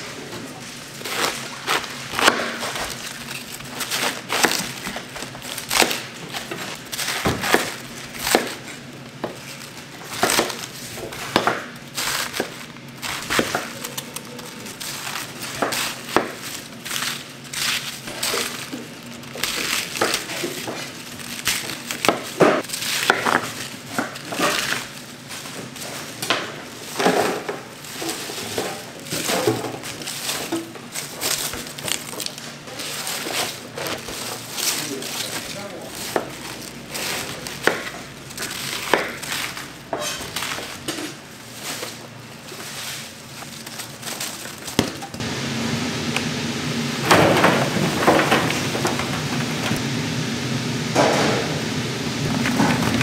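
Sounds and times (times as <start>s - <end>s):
food preparation knocks and clatter: 1.1s - 14.0s, 18.0s - 32.4s, 47.1s - 49.8s.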